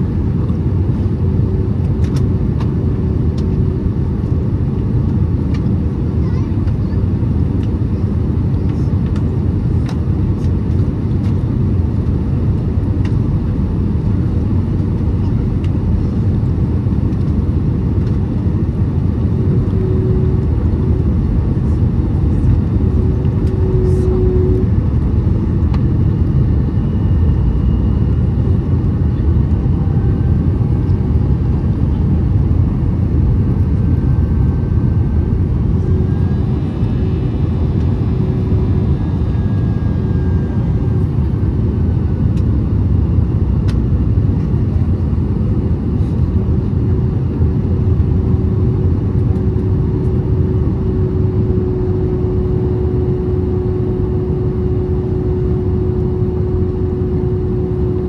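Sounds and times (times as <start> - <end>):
aircraft cabin engine rumble: 0.0 - 58.0
faint steady hum: 46.0 - 58.0.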